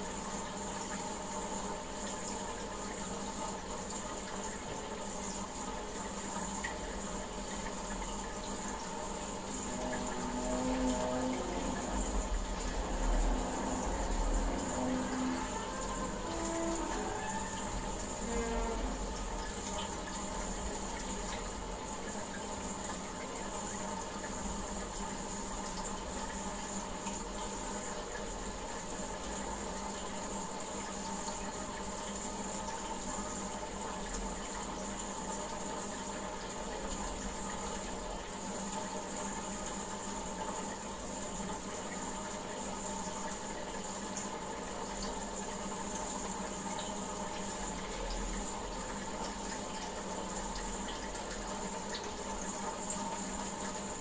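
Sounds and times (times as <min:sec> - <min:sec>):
aquarium water splashing: 0:00.0 - 0:54.0
steady hum: 0:05.4 - 0:25.8.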